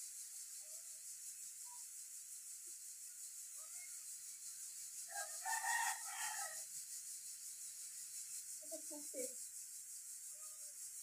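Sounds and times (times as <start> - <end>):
rooster crowing: 5.1 - 6.7.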